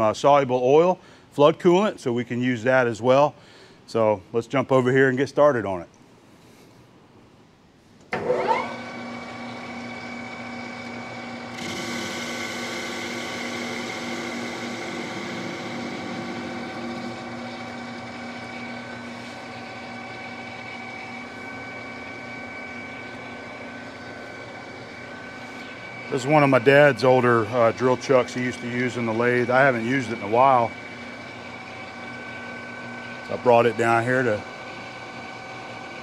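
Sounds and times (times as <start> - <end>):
lathe motor humming and whining: 8.1 - 36.0.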